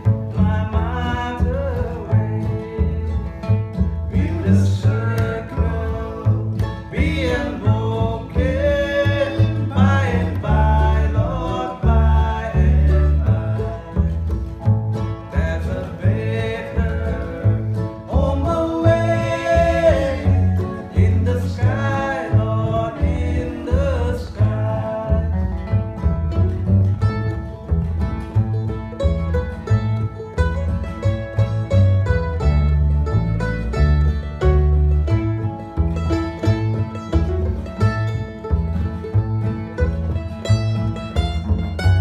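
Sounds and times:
acoustic string instruments: 0:00.0 - 0:42.0
low bass notes: 0:00.0 - 0:42.0
strummed acoustic guitar: 0:00.0 - 0:42.0
man singing: 0:00.3 - 0:03.5, 0:04.1 - 0:14.3, 0:15.2 - 0:25.8.

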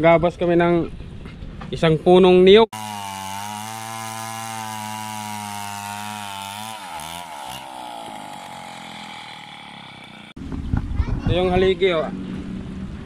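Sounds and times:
chainsaw cutting log: 0:02.7 - 0:10.4.

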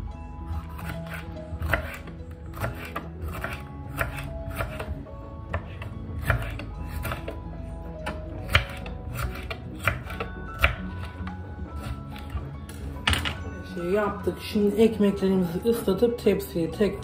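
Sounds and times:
background music: 0:00.0 - 0:17.0
knife slicing on cutting board: 0:00.6 - 0:04.9, 0:05.5 - 0:07.4, 0:08.4 - 0:11.1.

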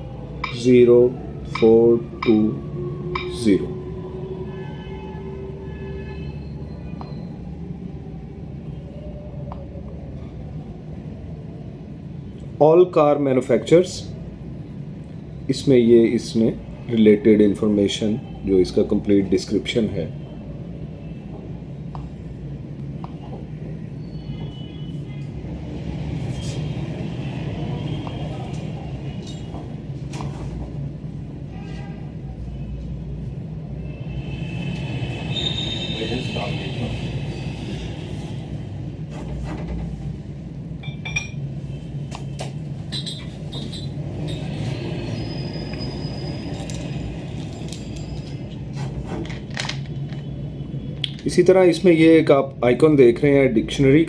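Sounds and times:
metallic clinks: 0:29.2 - 0:29.6, 0:42.9 - 0:44.5, 0:46.4 - 0:48.4.

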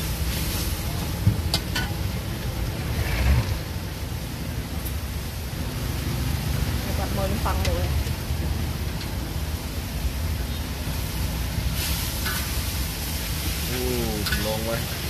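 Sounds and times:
sauce sizzling in a wok: 0:00.0 - 0:15.0.

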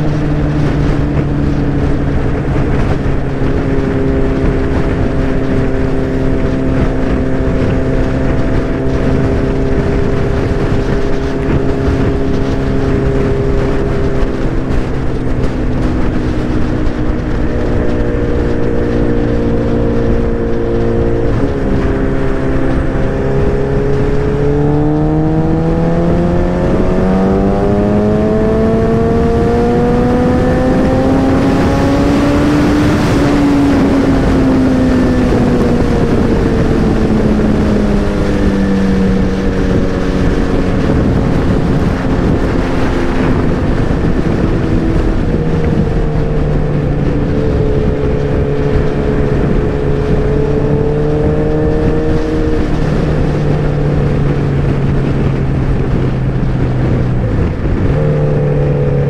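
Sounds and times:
motorcycle engine accelerating: 0:00.0 - 0:59.0
rushing wind: 0:00.0 - 0:59.0.

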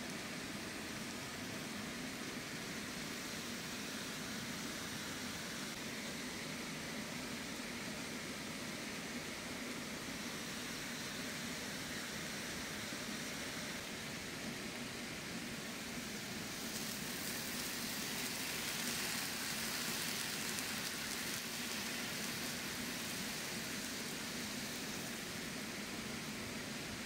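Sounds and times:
chicken sizzling in a pan: 0:15.5 - 0:27.0
water poured into hot pan: 0:16.3 - 0:25.5.

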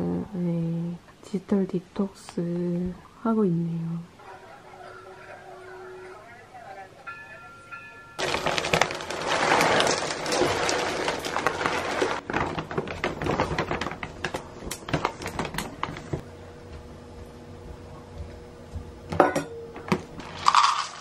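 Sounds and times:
dry kibble pouring into plastic container: 0:08.2 - 0:13.8, 0:20.3 - 0:21.0.

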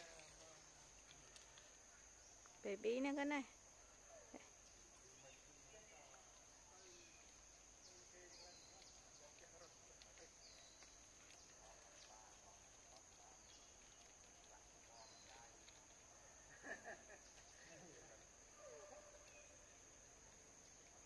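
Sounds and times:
insect drone: 0:00.0 - 0:21.0
faint bird chirps: 0:14.8 - 0:19.8.

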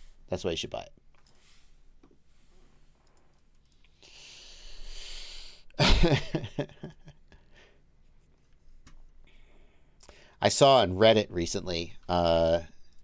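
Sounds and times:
man breathing: 0:03.9 - 0:05.8, 0:07.3 - 0:07.9, 0:09.2 - 0:10.4
man laughing: 0:05.8 - 0:07.4.

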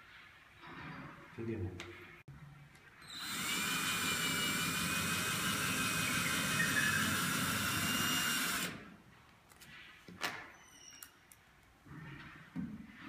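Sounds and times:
cordless drill whining: 0:03.0 - 0:08.9.

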